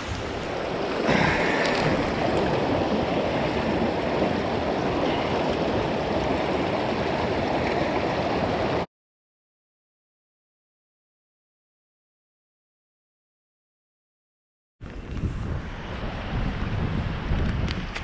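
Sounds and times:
river current rushing: 0.0 - 8.9.

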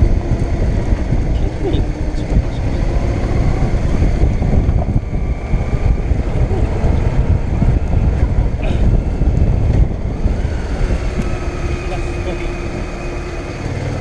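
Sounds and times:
motorcycle engine running: 0.0 - 14.0
wind rushing over microphone: 0.0 - 14.0.

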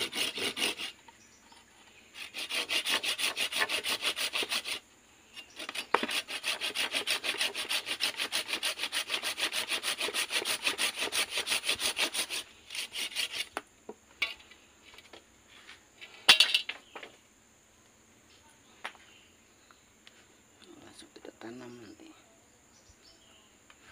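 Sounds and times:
hand saw cutting wood: 0.0 - 1.0, 2.2 - 4.8, 5.4 - 13.6.

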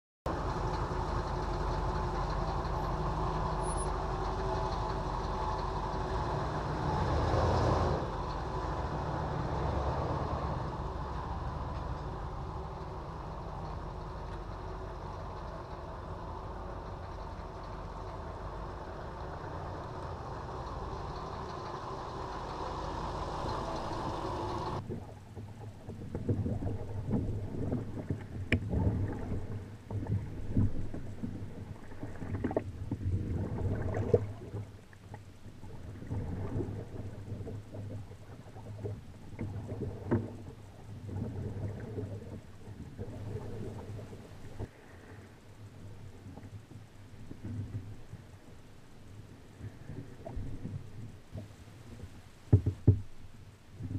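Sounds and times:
motorhome engine pulling away: 0.3 - 24.8
paddle strokes splashing water: 0.3 - 53.9.

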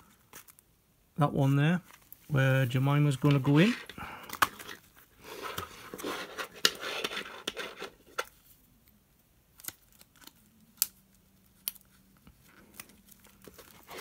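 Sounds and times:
plastic pages rustling and crinkling: 9.6 - 14.0.

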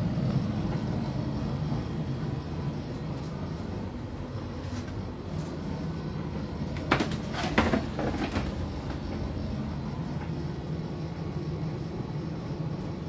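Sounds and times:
low machine hum: 0.0 - 13.0
plastic basket clattering: 6.8 - 8.7.

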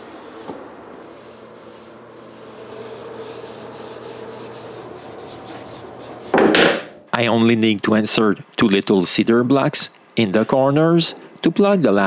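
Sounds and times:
steady low hum: 0.0 - 12.0
cloth rag wiping wood: 1.0 - 6.4.

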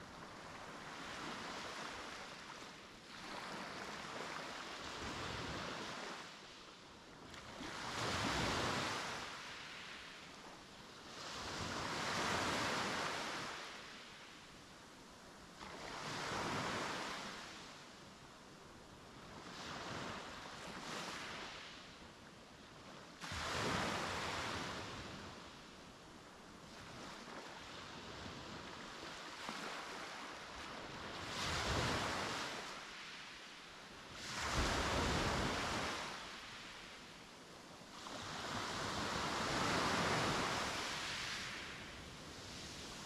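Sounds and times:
sea waves breaking on beach: 0.2 - 6.6, 23.2 - 25.6, 26.7 - 37.2, 37.9 - 43.0.

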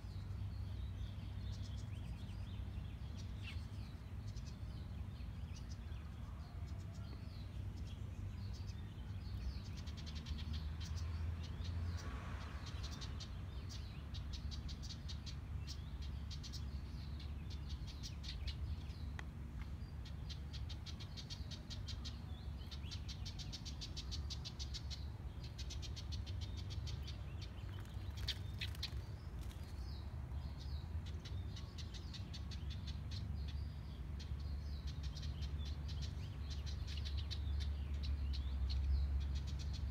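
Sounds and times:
wren chattering calls: 19.9 - 39.9.

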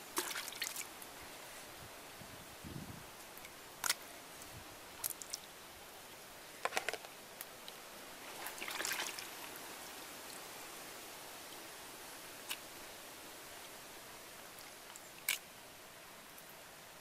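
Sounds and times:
water splashing in bucket: 0.0 - 0.9, 8.4 - 9.3.

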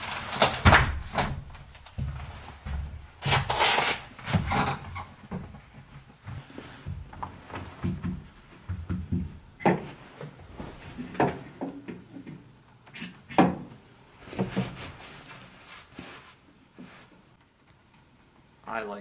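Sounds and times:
heavy boot steps: 1.2 - 3.5
sliding glass door scraping: 3.2 - 5.2.

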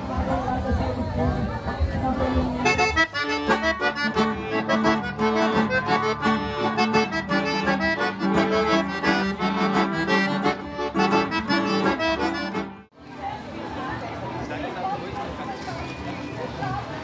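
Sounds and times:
accordion playing folk music: 1.7 - 13.0.

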